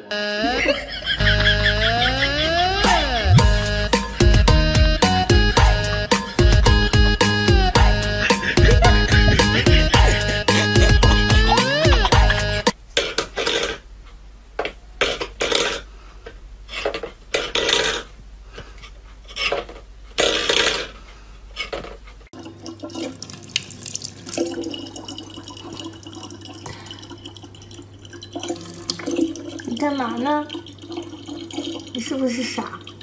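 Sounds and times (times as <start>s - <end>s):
steady hum: 0.0s - 12.8s
scrapes and clatters on floor: 15.0s - 21.0s.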